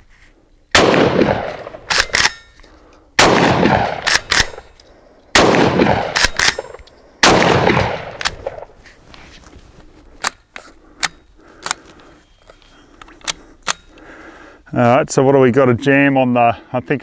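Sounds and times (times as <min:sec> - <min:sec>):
shotgun shots: 0:00.7 - 0:02.4, 0:03.2 - 0:04.7, 0:05.3 - 0:08.7.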